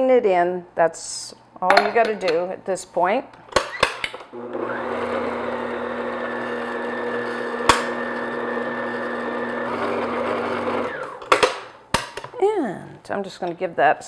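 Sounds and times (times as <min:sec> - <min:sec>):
stand mixer beating batter: 0:04.4 - 0:11.2.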